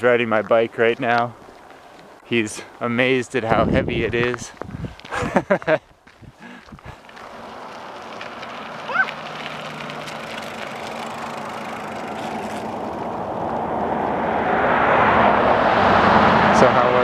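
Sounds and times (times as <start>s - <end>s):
vehicle road noise: 0.0s - 17.0s.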